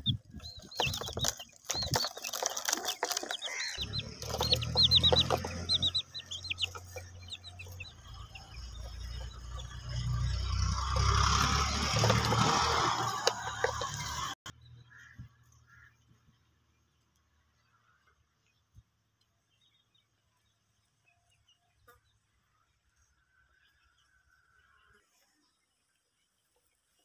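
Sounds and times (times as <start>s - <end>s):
baby chicks peeping: 0.0s - 17.1s.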